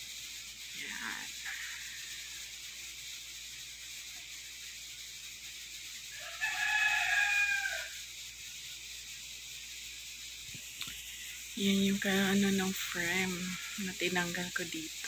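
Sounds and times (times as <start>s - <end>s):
background hiss: 0.0s - 15.0s
long animal call: 0.8s - 2.7s.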